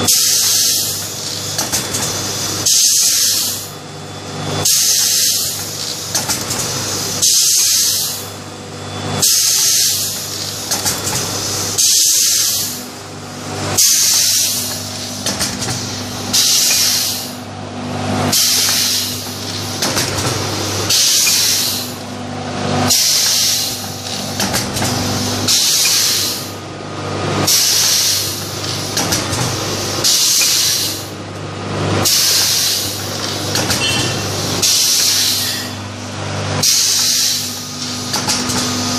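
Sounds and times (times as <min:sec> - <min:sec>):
low machine hum: 0:00.0 - 0:38.9
compressed air hissing: 0:02.6 - 0:03.7, 0:04.6 - 0:05.6, 0:06.9 - 0:08.2, 0:09.2 - 0:12.8, 0:13.8 - 0:15.1, 0:15.8 - 0:17.4, 0:18.3 - 0:20.0, 0:20.6 - 0:22.0, 0:22.9 - 0:24.3, 0:27.5 - 0:29.1, 0:30.0 - 0:31.1, 0:32.0 - 0:33.0, 0:34.2 - 0:35.7, 0:36.6 - 0:38.1.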